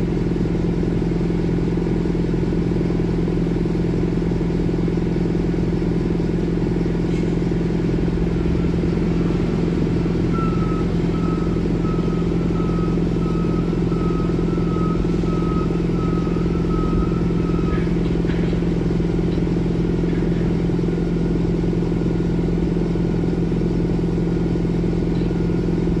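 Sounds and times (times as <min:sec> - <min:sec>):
low machinery drone: 0:00.0 - 0:26.0
pulsing warning beeper: 0:09.1 - 0:19.3.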